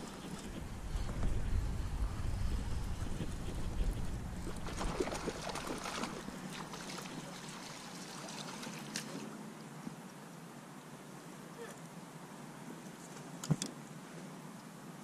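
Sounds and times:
lure gurgling and splashing in water: 0:04.4 - 0:09.1.

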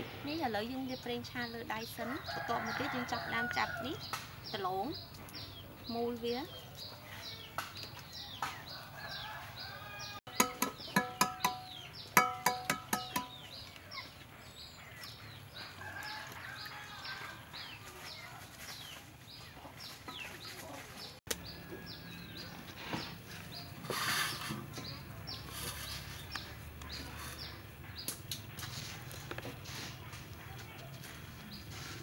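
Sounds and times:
bird chirping: 0:04.0 - 0:17.8.

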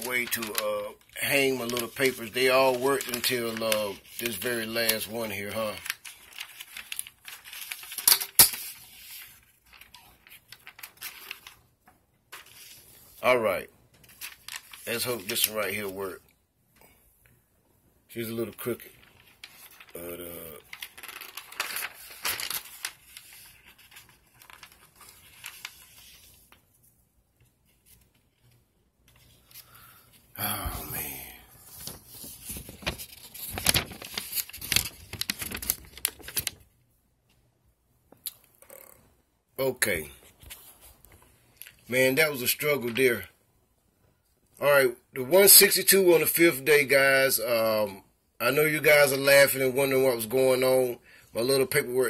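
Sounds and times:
paper rustling: 0:00.0 - 0:16.2, 0:18.2 - 0:36.7, 0:39.8 - 0:43.3.

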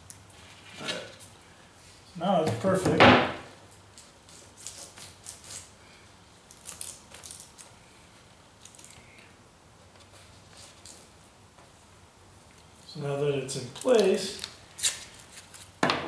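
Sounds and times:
foil tape ripping and crinkling: 0:04.2 - 0:05.7, 0:06.5 - 0:07.8, 0:13.8 - 0:15.8.

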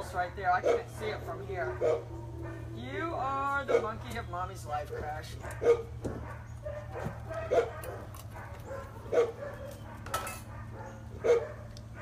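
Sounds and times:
dog barking: 0:00.6 - 0:01.0, 0:01.6 - 0:02.7, 0:03.7 - 0:04.0, 0:04.9 - 0:12.0
low hum: 0:00.8 - 0:04.6.

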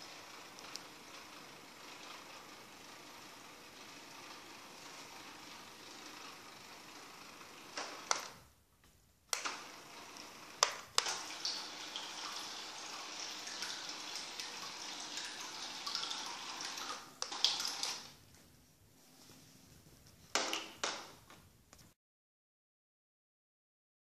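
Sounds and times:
small electric motor spinning propeller: 0:00.1 - 0:08.1.

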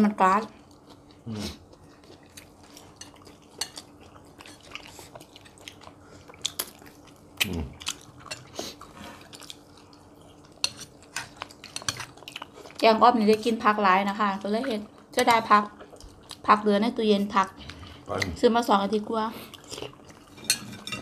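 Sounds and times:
chewing: 0:00.6 - 0:13.6, 0:14.5 - 0:16.5, 0:19.4 - 0:21.0
spoons clinking against bowls: 0:20.4 - 0:21.0.

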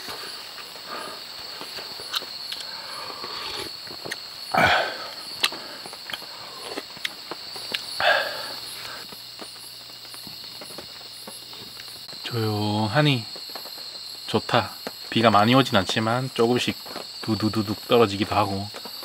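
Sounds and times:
crickets chirping: 0:00.0 - 0:19.0
raindrops dripping on a tarp: 0:00.0 - 0:19.0
person eating: 0:02.5 - 0:08.6.

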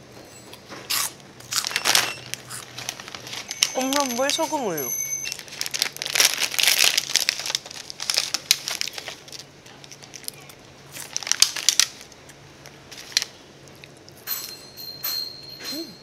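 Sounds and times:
plastic snack bag rustling: 0:00.8 - 0:13.4.

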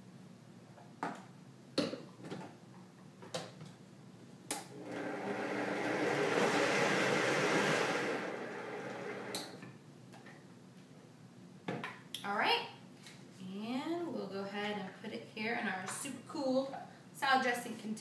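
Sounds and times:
blender running: 0:04.7 - 0:09.6.

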